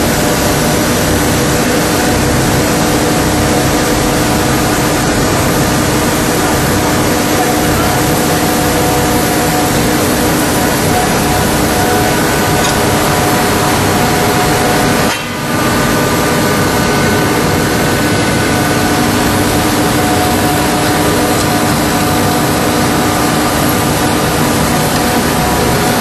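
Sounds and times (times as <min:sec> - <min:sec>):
industrial machine humming: 0:00.0 - 0:26.0.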